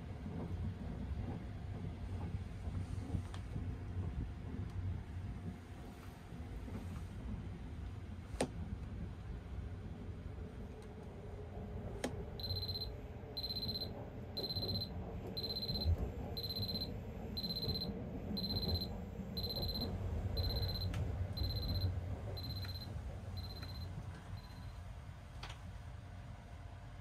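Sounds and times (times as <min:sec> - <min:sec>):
train rumble: 0:00.0 - 0:27.0
digital alarm clock beeping: 0:12.4 - 0:24.7.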